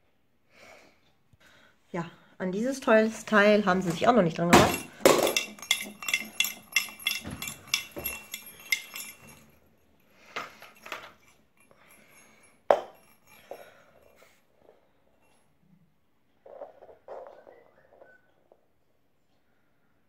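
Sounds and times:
toy rattling on hard floor: 3.9s - 9.6s, 10.2s - 14.4s.

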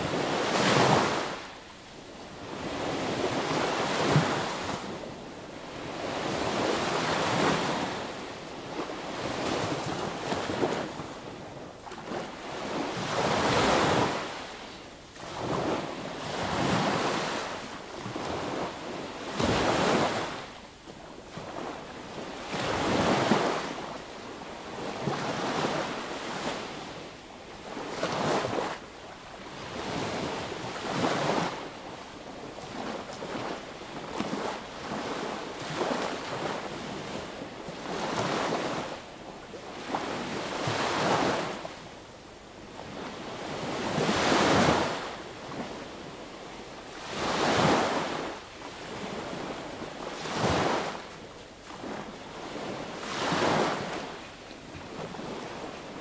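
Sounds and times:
sea waves breaking on beach: 32.4s - 39.0s, 46.9s - 56.0s.

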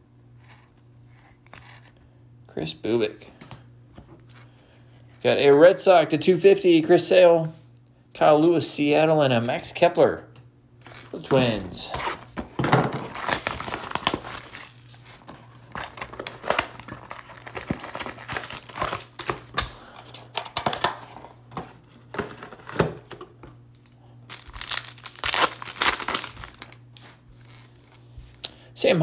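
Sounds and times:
foil wrappers crinkling: 10.8s - 21.1s, 24.2s - 27.8s
wrapper tearing: 13.0s - 19.6s, 24.3s - 27.7s.

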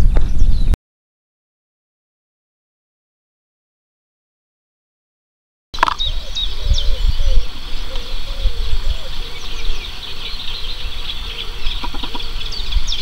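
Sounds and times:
small birds chirping and singing: 0.0s - 0.8s, 5.8s - 13.0s
wind rumble on microphone: 0.0s - 0.8s, 5.8s - 13.0s
lower repeated bird call: 5.8s - 13.0s.

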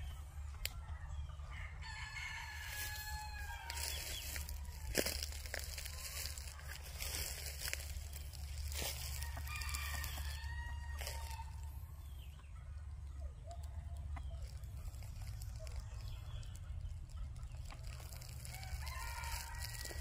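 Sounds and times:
rooster crowing: 1.4s - 6.3s, 8.7s - 11.7s, 18.2s - 20.0s.

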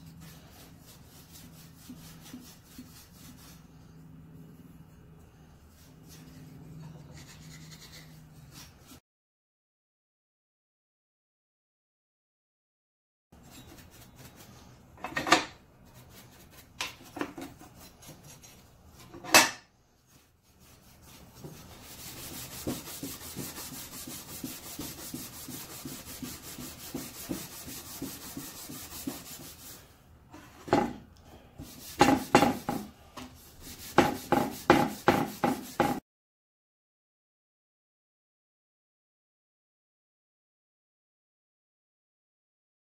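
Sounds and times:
scouring pad scrubbing metal: 20.6s - 29.8s, 31.6s - 32.9s, 33.5s - 36.0s.

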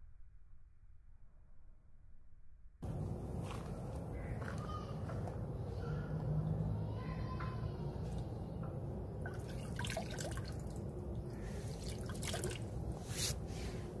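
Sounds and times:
hand stirring water: 9.2s - 13.5s.

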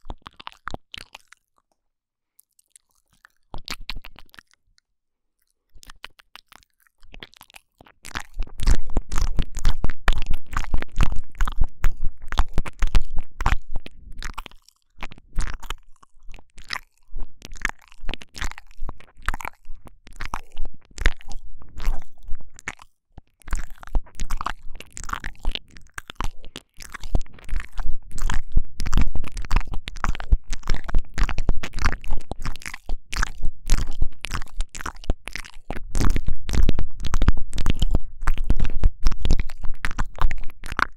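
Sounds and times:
tongue and lip clicks: 0.0s - 1.8s, 2.4s - 40.9s.

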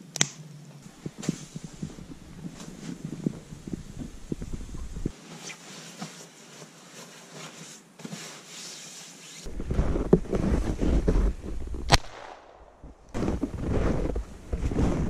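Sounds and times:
sharp crack: 0.0s - 0.5s, 11.7s - 13.4s
low microphone rumble: 0.8s - 5.1s, 9.5s - 15.0s
footsteps crunching in snow: 0.8s - 5.2s, 9.4s - 12.0s, 13.1s - 15.0s
sleeping bag rustling: 0.8s - 11.9s, 13.1s - 15.0s.

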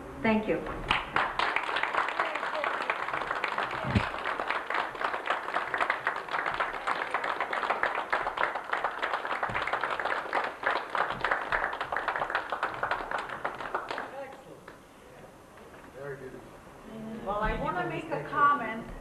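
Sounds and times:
audience applauding: 0.8s - 14.8s.

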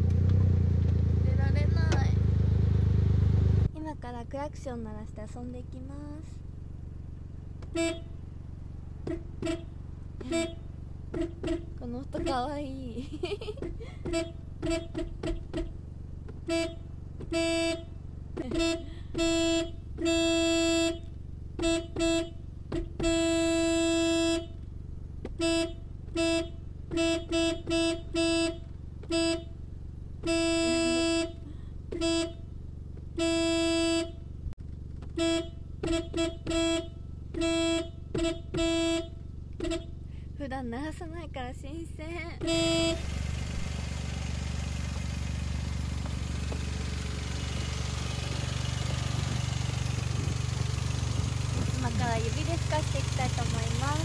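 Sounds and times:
car horn toots and blasts: 7.6s - 8.3s, 9.0s - 12.4s, 13.3s - 24.6s, 25.3s - 34.4s, 35.1s - 40.1s, 42.4s - 54.0s.

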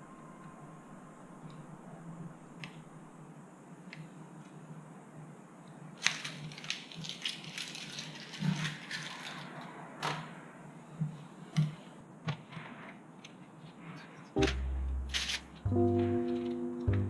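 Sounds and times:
crinkling and rustling: 6.0s - 10.4s
low steady hum: 14.4s - 17.0s.

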